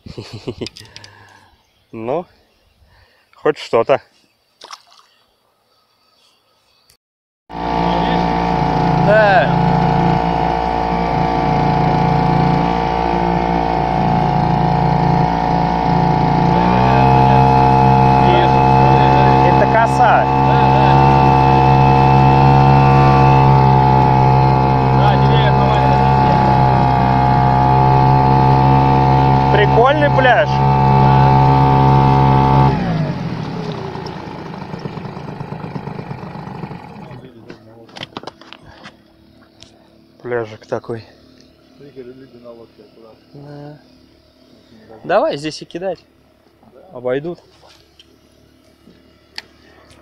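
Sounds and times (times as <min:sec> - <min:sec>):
outboard motor droning: 0:07.5 - 0:50.0
water washing along hull: 0:07.6 - 0:37.1.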